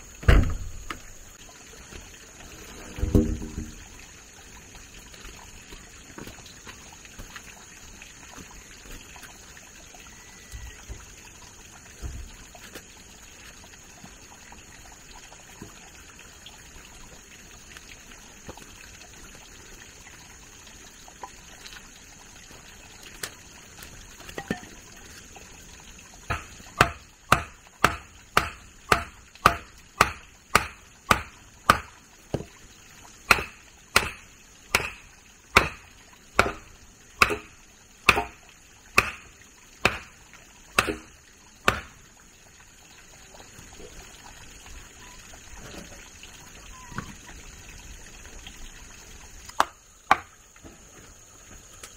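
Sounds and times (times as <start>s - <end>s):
faint steady hiss: 0.0s - 51.9s
tool chopping: 26.3s - 32.4s, 33.3s - 37.5s, 38.1s - 38.4s, 39.0s - 40.2s, 40.8s - 42.0s.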